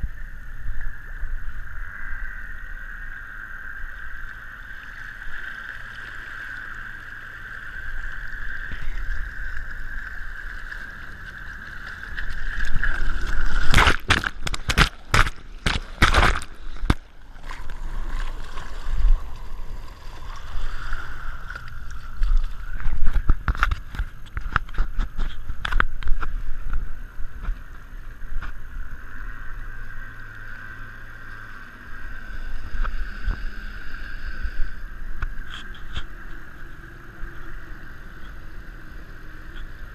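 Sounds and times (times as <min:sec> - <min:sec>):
water lapping along hull: 0:00.0 - 0:39.9
outboard motor humming: 0:01.9 - 0:39.9
loud splashes and knocks: 0:13.6 - 0:17.6.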